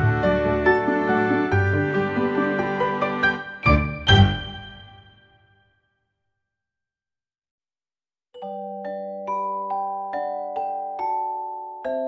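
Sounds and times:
soft instrumental melody: 0.0s - 5.6s.

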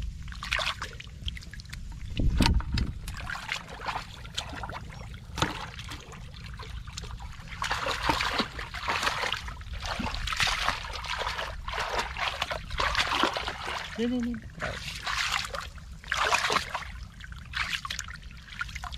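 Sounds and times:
muddy water splashing: 0.0s - 18.9s.

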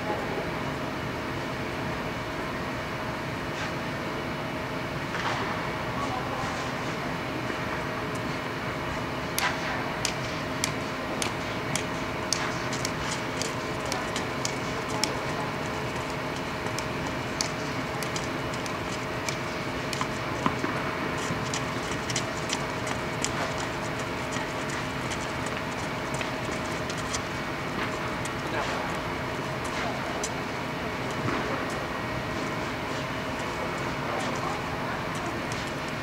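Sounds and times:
dome blower fan hum: 0.0s - 36.0s
tennis balls struck and bouncing: 9.4s - 27.2s.

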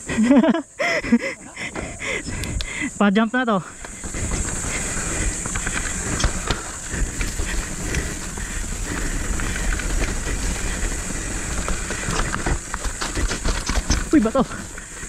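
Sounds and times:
bike knocks and rattles: 3.8s - 15.0s
tyre noise over dirt and rock: 3.8s - 15.0s.

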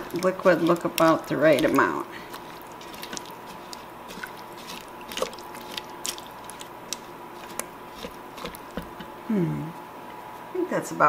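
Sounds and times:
spatula stirring wet food: 0.0s - 9.2s
faint steady hum: 0.0s - 11.0s.

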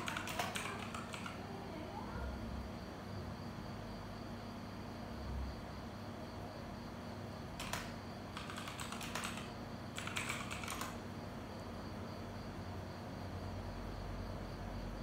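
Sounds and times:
typing on keyboard: 0.0s - 1.5s, 7.5s - 11.1s.

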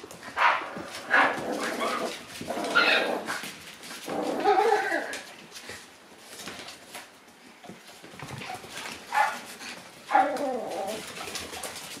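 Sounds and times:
puppy yelping whine: 4.1s - 5.3s, 10.1s - 11.2s.

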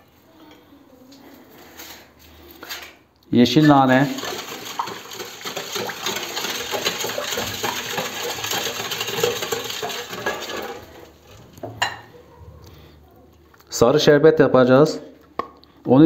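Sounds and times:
whisk rattling against metal bowl: 3.6s - 12.0s.

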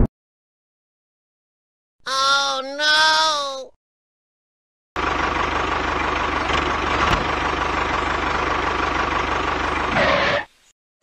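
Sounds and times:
tractor engine running: 5.0s - 10.4s.

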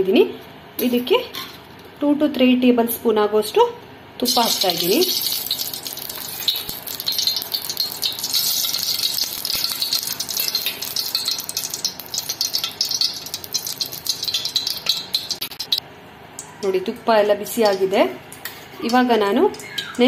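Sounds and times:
ghee sizzling and crackling: 4.2s - 15.8s, 16.4s - 20.0s.

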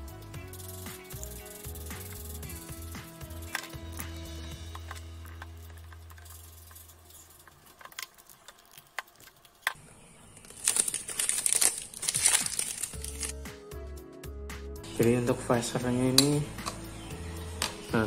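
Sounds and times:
plastic film crinkling: 5.4s - 13.4s.

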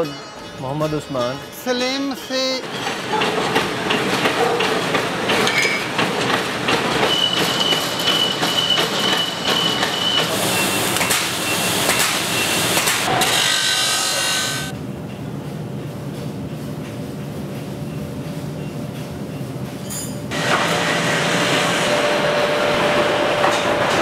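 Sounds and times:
ring-rolling machine clanking: 0.0s - 13.3s
band saw cutting steel: 7.0s - 14.7s
welder crackling and humming: 10.2s - 13.2s.

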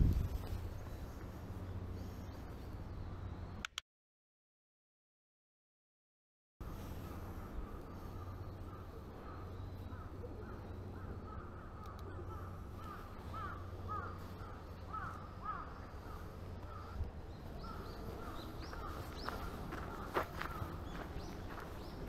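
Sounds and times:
crows cawing: 7.3s - 17.0s, 17.6s - 21.6s.

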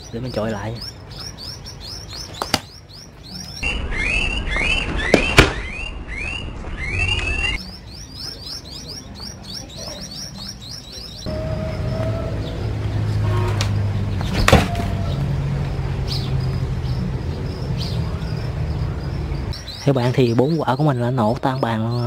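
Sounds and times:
rapid chirping: 0.0s - 12.8s.

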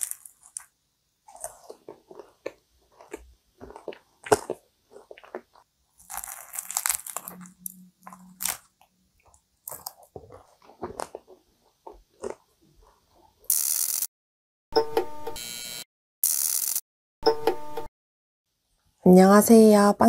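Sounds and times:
crunchy pastry bites: 0.0s - 12.4s.

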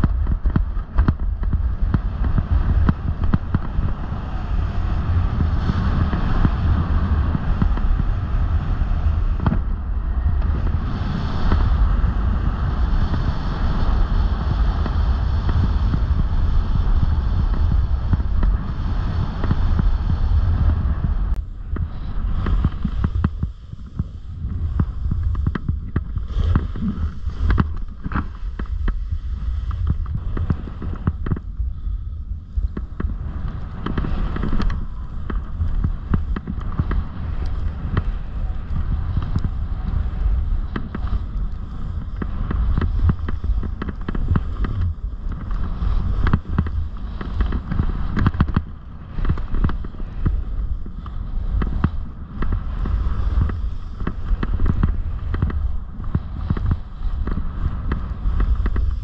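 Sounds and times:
snowboard scraping over snow: 0.0s - 59.0s
wind rumble on microphone: 0.0s - 59.0s.

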